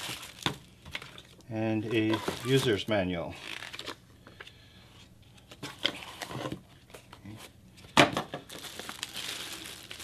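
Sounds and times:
cardboard and paper rustling: 0.0 - 4.0, 8.5 - 10.0
plastic bag crinkling: 0.0 - 4.0, 8.4 - 10.0.

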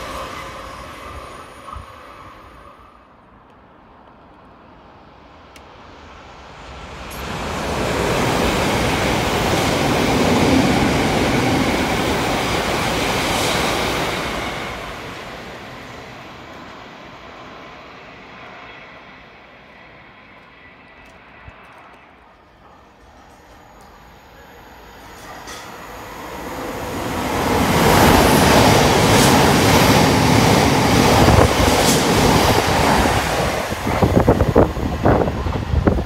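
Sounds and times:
fast train passing: 0.0 - 36.0
wheels rushing on rail: 0.0 - 36.0.

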